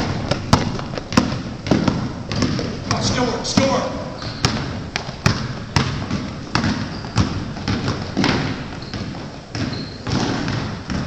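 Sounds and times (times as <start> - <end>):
basketball bouncing on wooden floor: 0.0 - 11.0
sneaker squeak: 2.4 - 4.9, 6.4 - 11.0.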